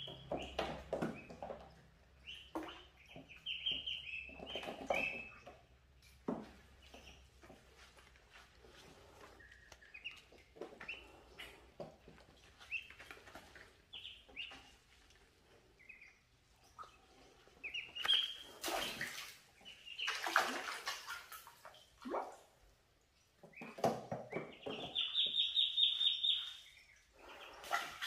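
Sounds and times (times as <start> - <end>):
ducklings peeping: 0.0 - 21.9, 23.0 - 28.0
water splashing: 16.8 - 22.7, 27.2 - 28.0.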